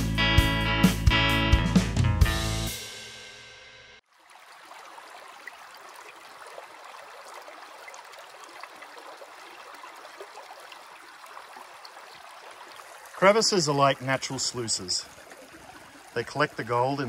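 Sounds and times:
music track: 0.0 - 3.9
creek water over rocks: 4.0 - 17.0.

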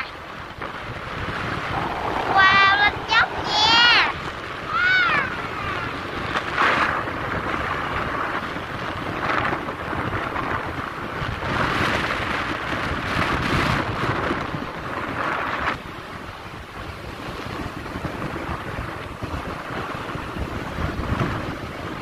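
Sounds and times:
road noise: 0.0 - 11.7
wind buffeting microphone: 0.0 - 22.0.

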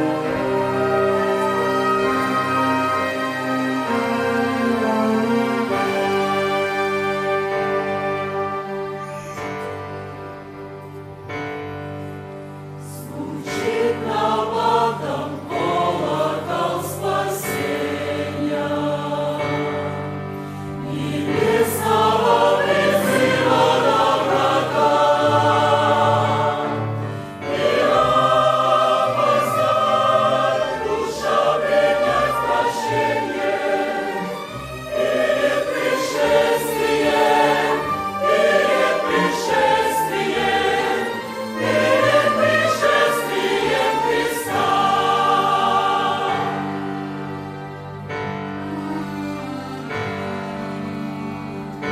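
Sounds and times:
choir singing a hymn: 0.0 - 10.4, 12.2 - 51.9
piano: 0.0 - 51.9
violins: 0.0 - 51.9.

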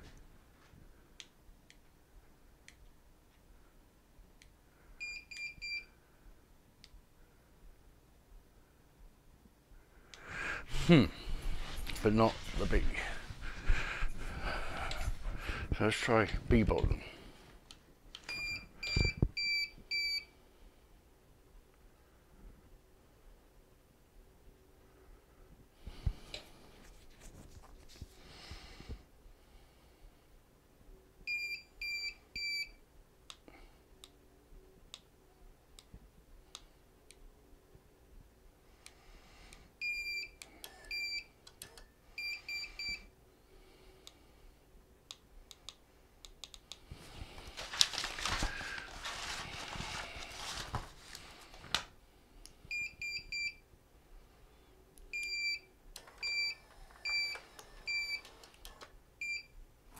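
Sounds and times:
rustling noise: 10.6 - 17.6, 25.8 - 28.9, 46.9 - 52.0.

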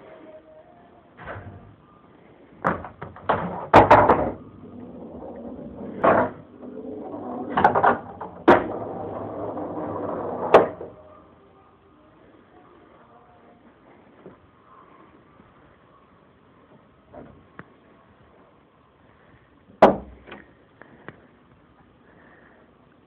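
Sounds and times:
pool balls clacking: 2.6 - 11.0
balls rolling inside pool table: 2.6 - 11.1.

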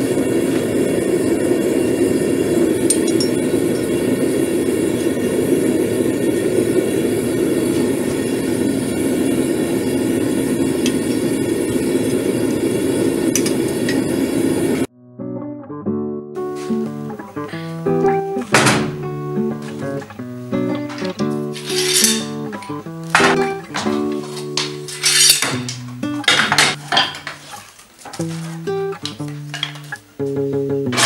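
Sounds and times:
gas forge burner roaring: 0.0 - 14.9, 16.5 - 30.0
acoustic guitar music: 14.8 - 31.0.

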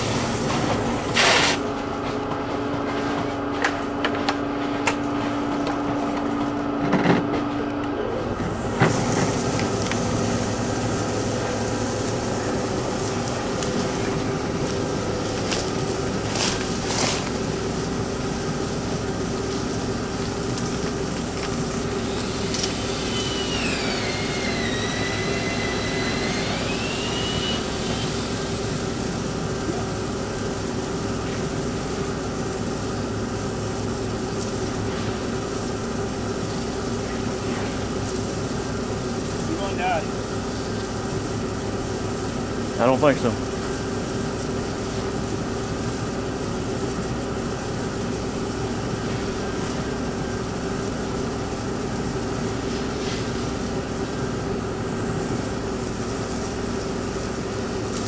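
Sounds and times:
insulation blowing machine drone: 0.0 - 58.0
sliding whistling tone: 22.0 - 28.4.

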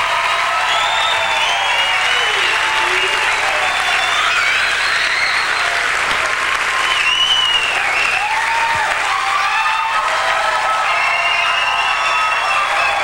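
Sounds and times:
audience applauding: 0.0 - 13.0
voices calling out: 1.9 - 4.3.

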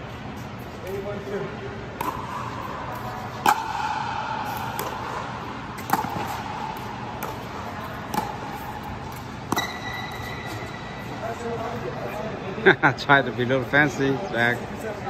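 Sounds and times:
paddles striking ball: 2.0 - 10.4.

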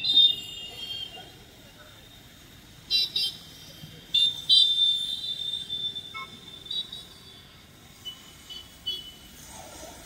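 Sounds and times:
vehicle horns honking: 2.9 - 9.3.

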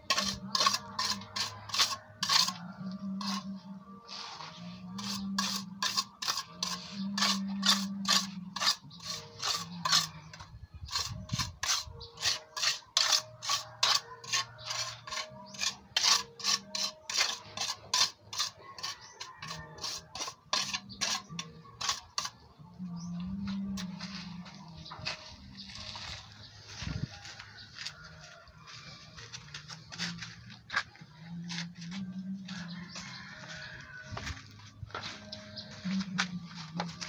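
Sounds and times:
trowel scraping wet cement on metal: 0.0 - 27.0.

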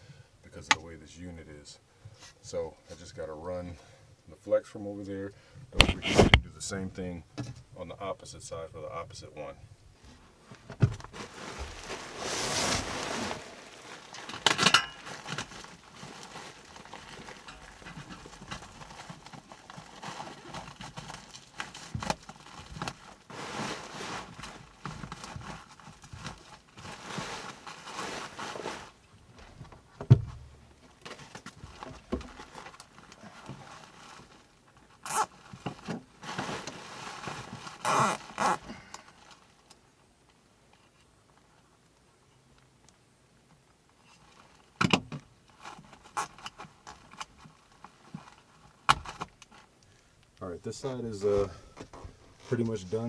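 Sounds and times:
foil duct rustling and crinkling: 10.6 - 29.9, 30.8 - 39.8, 45.4 - 50.0
knocks and thump: 10.7 - 11.8, 29.4 - 30.5.

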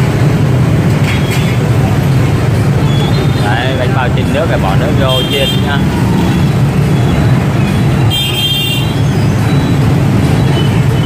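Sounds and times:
motorbike traffic: 0.0 - 11.0.

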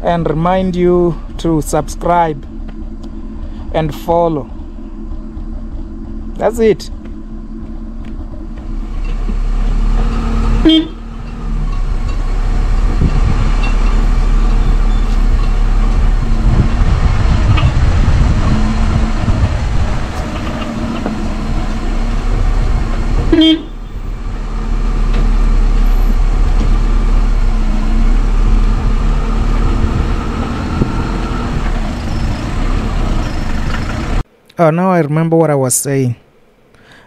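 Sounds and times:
car engine running: 0.0 - 34.3
car horn toots: 10.5 - 11.2, 23.2 - 24.0.

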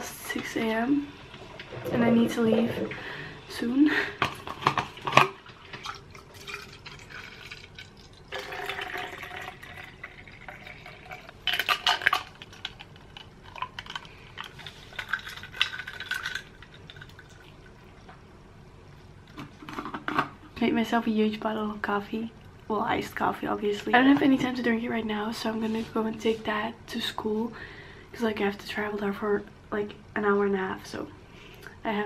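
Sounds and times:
liquid pouring and sloshing: 1.3 - 3.2, 4.2 - 18.1.

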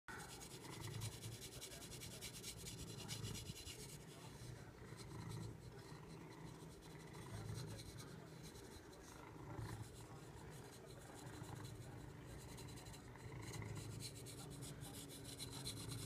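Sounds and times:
back scratcher rasping through fur: 0.2 - 4.3, 9.8 - 16.0.

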